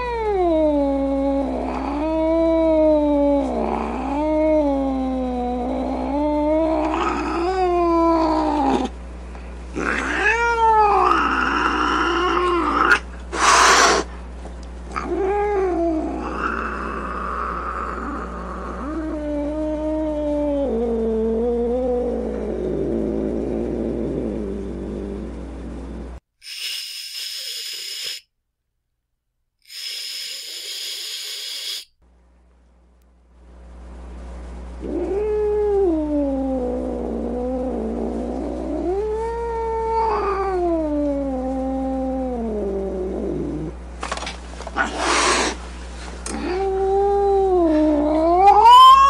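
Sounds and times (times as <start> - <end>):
steady hum: 0.3 - 26.2
cat hissing: 9.7 - 14.2, 26.4 - 28.3, 29.6 - 31.9, 44.7 - 49.0
cat yowling angrily: 9.8 - 14.1, 38.9 - 42.2, 46.3 - 49.0.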